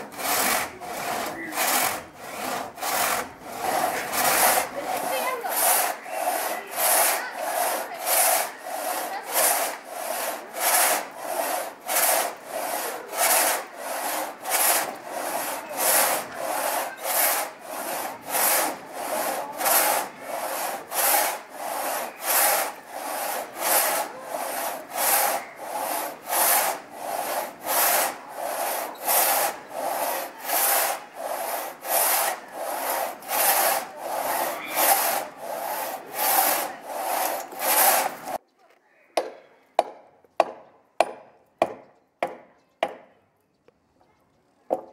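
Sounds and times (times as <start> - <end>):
pit saw rasping through log: 0.0 - 38.4.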